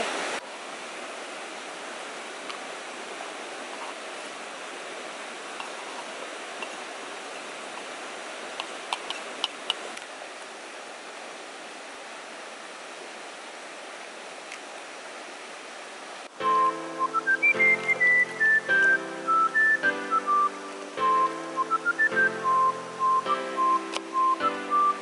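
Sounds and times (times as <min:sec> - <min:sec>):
music: 0:16.4 - 0:25.0.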